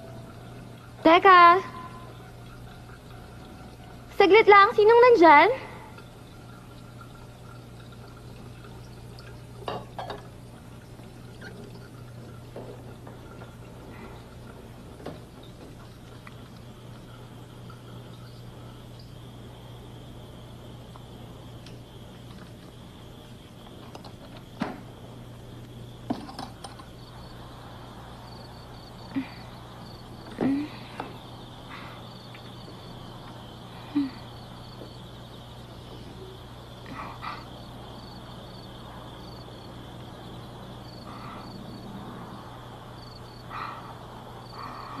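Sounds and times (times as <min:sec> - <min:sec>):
tap water running into sink: 0:00.0 - 0:19.1
crickets chirping faintly: 0:00.0 - 0:45.0
steady low hum: 0:00.0 - 0:45.0
dishware clinking: 0:09.7 - 0:10.3
small ticks: 0:20.8 - 0:24.6, 0:29.2 - 0:36.2.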